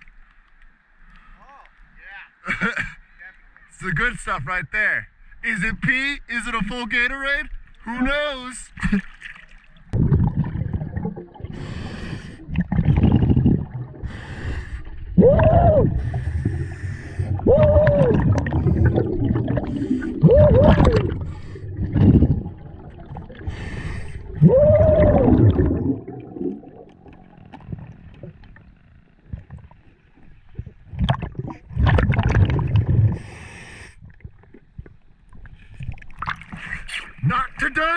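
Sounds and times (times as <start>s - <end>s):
bubbling exhalations underwater: 9.9s - 28.4s, 30.5s - 33.4s.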